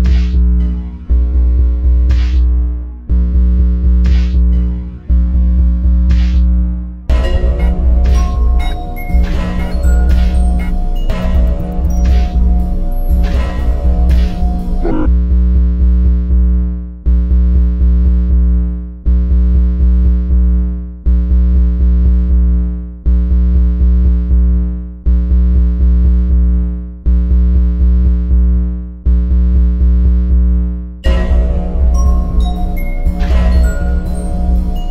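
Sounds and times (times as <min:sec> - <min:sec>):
deep sustained bass: 0:00.0 - 0:07.1
synthesizer loop: 0:07.1 - 0:15.1, 0:31.0 - 0:34.9.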